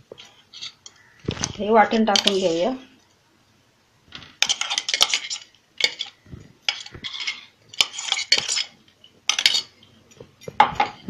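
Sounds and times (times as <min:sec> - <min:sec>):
metal-on-metal scrapes and clinks: 0:04.4 - 0:09.8.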